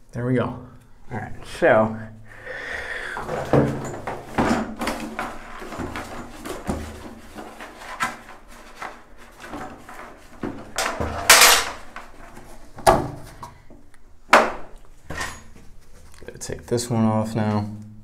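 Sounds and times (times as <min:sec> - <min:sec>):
scraping rustle: 0:03.2 - 0:13.4
tools knocking and clicking: 0:10.7 - 0:11.9.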